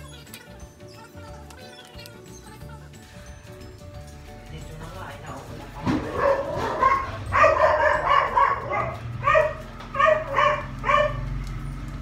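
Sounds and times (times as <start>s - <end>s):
small dog barking: 6.0s - 11.3s.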